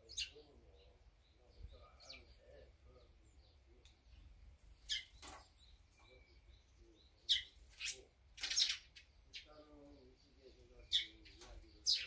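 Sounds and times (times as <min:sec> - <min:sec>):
birds calling: 0:00.0 - 0:12.0.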